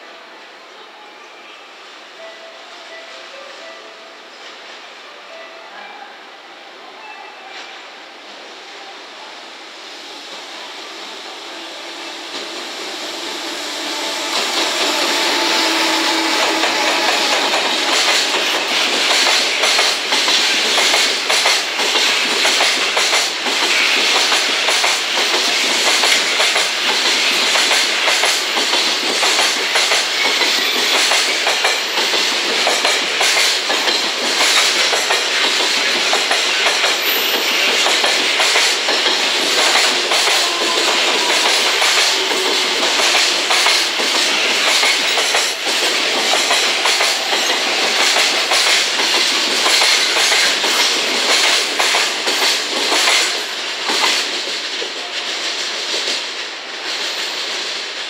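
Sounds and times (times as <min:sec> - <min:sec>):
electric locomotive passing: 0:00.0 - 0:58.0
wheels clacking over rail joints: 0:13.4 - 0:55.1.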